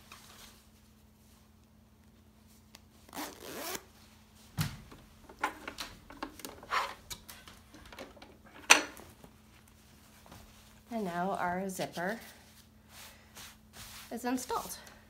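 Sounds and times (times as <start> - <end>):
zipper being zipped: 3.1 - 3.9.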